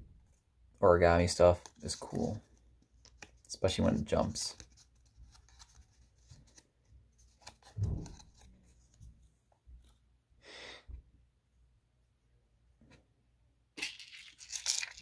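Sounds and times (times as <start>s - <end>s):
paper rustling: 1.5s - 9.2s
soft thump: 7.8s - 8.2s.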